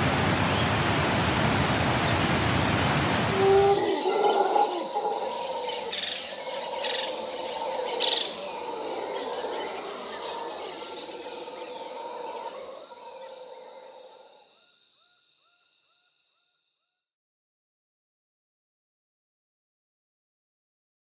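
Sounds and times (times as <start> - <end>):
insects chirring: 3.1 - 17.0.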